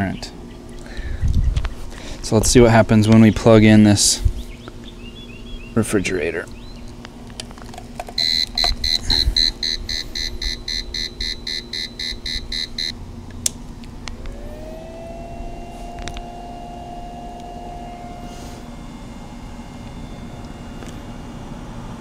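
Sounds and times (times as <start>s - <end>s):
faint rising whine: 0.3s - 22.0s
inverter alarm beeping rapidly: 8.1s - 13.0s, 14.3s - 21.5s.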